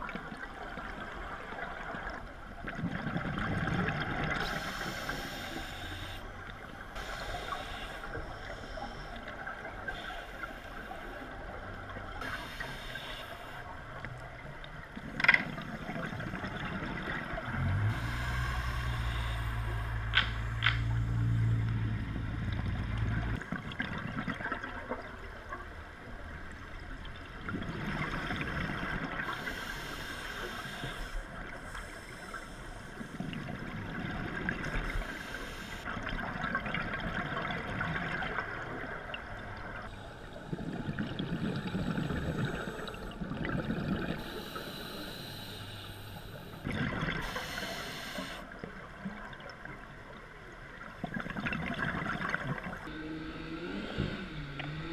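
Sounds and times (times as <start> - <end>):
scuba regulator breathing: 4.4 - 6.3, 7.0 - 9.3, 12.2 - 13.7, 17.9 - 21.6, 29.2 - 33.2, 34.8 - 35.9, 44.0 - 48.5, 52.9 - 54.9.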